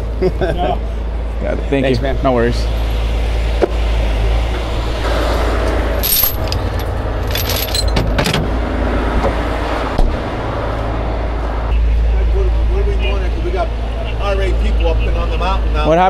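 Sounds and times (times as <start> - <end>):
diesel engine idling: 0.0 - 16.0
metal chains clinking: 6.0 - 8.3.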